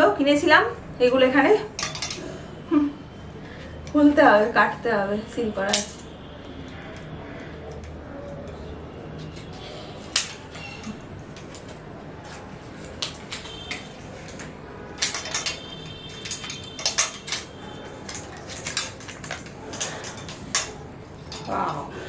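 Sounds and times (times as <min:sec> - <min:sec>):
clothes hangers clattering on rail: 0:01.8 - 0:02.4, 0:05.6 - 0:06.2, 0:09.4 - 0:11.8, 0:12.8 - 0:21.9.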